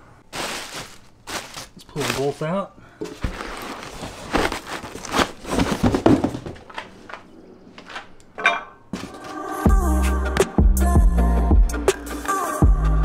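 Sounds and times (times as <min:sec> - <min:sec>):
plastic wrapping crinkling: 0:00.2 - 0:07.2
cardboard box knocks: 0:05.5 - 0:06.6.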